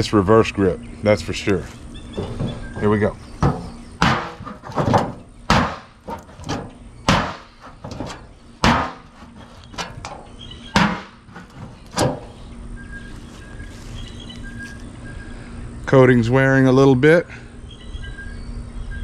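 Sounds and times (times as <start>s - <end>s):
knife striking steel panel: 3.4s - 10.2s, 10.8s - 12.3s.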